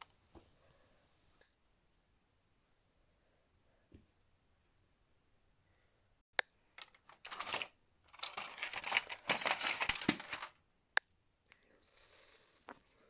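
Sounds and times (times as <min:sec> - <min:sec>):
plastic toy track click: 0:06.8 - 0:10.5
toy train coaches clattering: 0:06.8 - 0:10.5.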